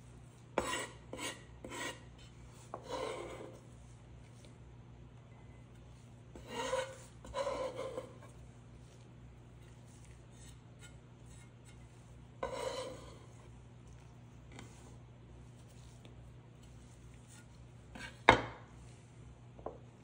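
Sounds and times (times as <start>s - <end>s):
knife scraping a wooden board: 0.6s - 3.7s, 6.3s - 13.5s, 15.6s - 18.4s.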